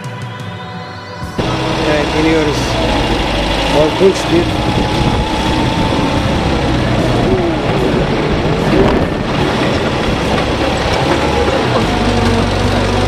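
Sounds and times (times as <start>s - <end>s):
vehicle rumbling over sand: 1.4s - 13.0s.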